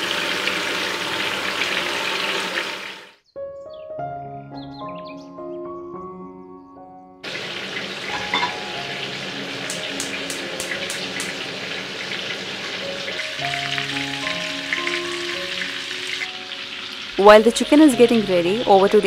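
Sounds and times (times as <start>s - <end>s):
chicken sizzling in oil: 0.0s - 3.2s, 7.2s - 19.0s
background music: 3.3s - 7.3s, 8.1s - 19.0s
gas burner igniter clicks: 9.7s - 11.4s.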